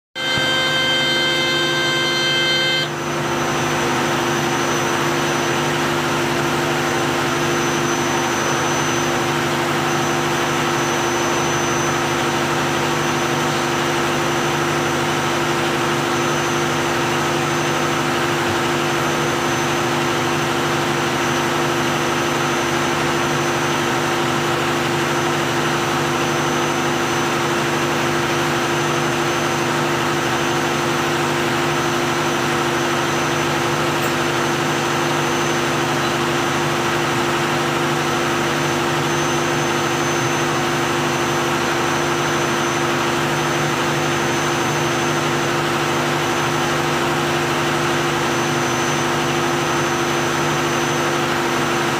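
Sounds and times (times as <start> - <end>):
steady high horn tone: 0.1 - 4.7
diesel engine droning: 0.2 - 21.8.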